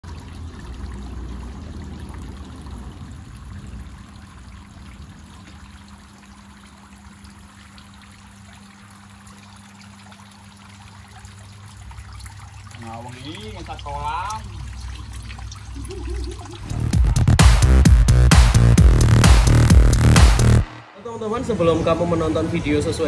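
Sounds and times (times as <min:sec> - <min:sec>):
water trickling and splashing: 0:00.0 - 0:17.7
low steady hum: 0:00.0 - 0:23.0
low rumble: 0:15.8 - 0:22.5.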